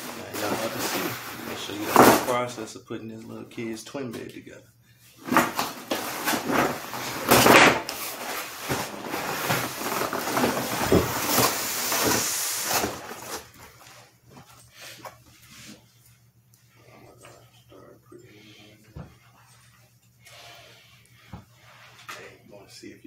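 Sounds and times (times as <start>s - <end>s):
cardboard flaps scraping: 0.0s - 2.3s, 5.2s - 13.8s
cardboard rustling: 0.0s - 2.4s, 5.2s - 14.1s.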